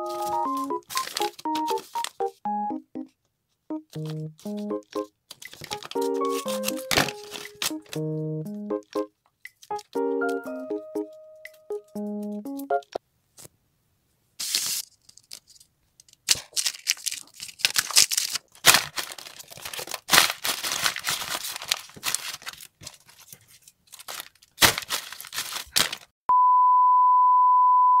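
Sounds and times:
paper bags crumpling: 0.0 - 2.3, 5.4 - 8.0, 14.4 - 15.7, 16.3 - 26.2
high-pitched beep tone: 26.3 - 28.0.

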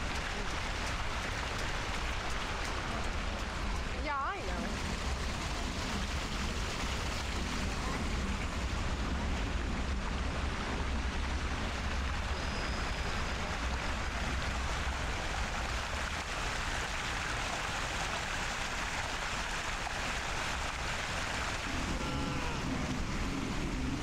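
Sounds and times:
fountain water splashing: 0.0 - 24.0
low rumble: 20.1 - 24.0.

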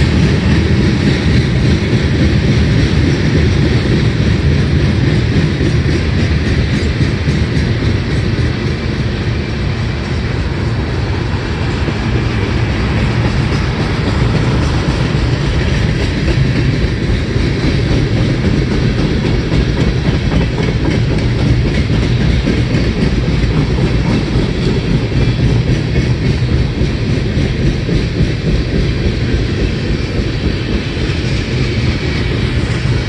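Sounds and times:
steel wheels on rails: 0.0 - 33.0.

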